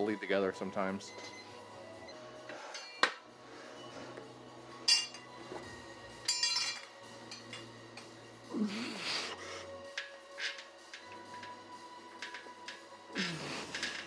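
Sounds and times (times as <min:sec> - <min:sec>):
iron plates clinking: 0:04.8 - 0:05.4, 0:06.1 - 0:08.1.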